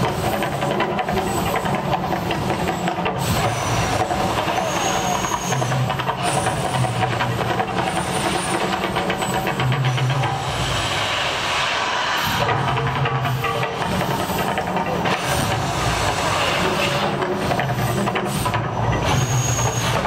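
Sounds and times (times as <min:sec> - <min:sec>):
loud hissing rush of fire jets: 0:00.0 - 0:20.0
low drone: 0:09.4 - 0:19.4.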